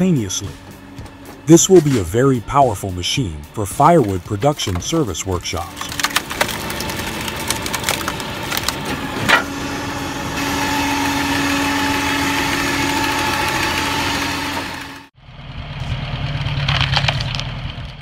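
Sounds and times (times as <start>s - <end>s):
machinery engine drone: 0.0s - 18.0s
tractor engine: 0.0s - 18.0s
log splitting crack: 4.4s - 9.1s, 16.5s - 18.0s.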